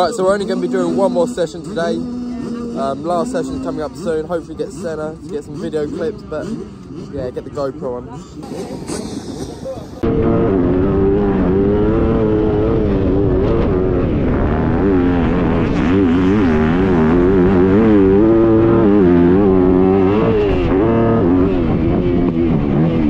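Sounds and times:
dirt bike engine revving: 0.0s - 23.0s.

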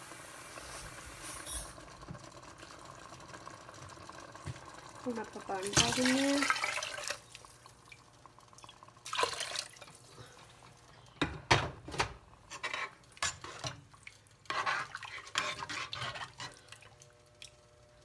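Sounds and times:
water splashing into pot: 4.4s - 10.0s.

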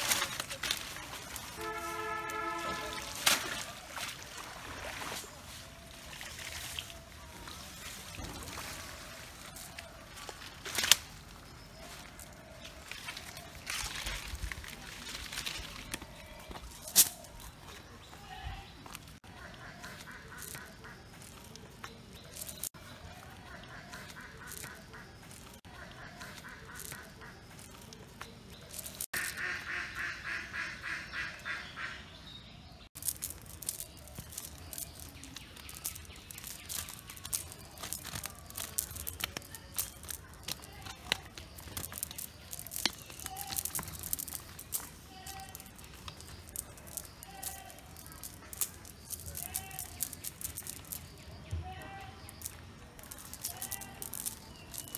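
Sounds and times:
net rustling: 0.0s - 4.3s, 33.0s - 51.2s
fish flapping on dirt: 0.0s - 18.4s, 19.0s - 30.0s, 32.9s - 54.9s.

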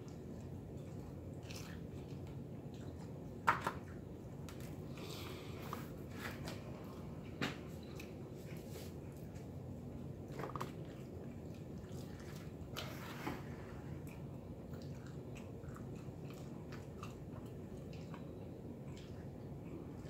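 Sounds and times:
person chewing food: 0.0s - 20.0s.

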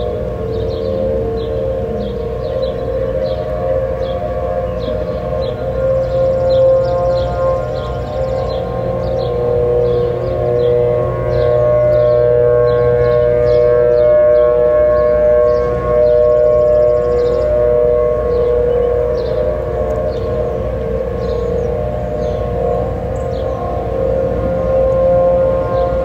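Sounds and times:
warning sirens steady tone: 0.0s - 26.0s.

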